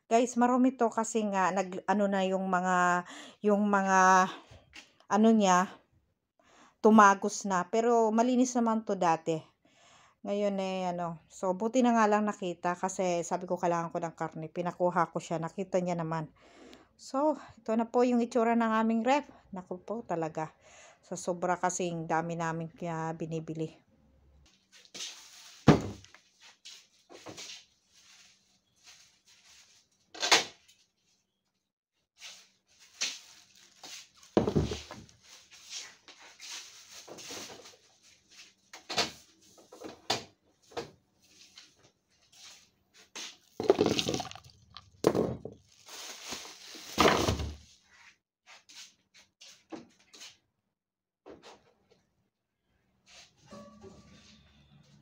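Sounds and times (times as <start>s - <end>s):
plastic bag rustling: 32.8s - 35.3s, 43.4s - 47.6s
items clattering in refrigerator: 34.4s - 35.1s, 43.6s - 47.6s
jars dropping into plastic bag: 43.6s - 47.6s.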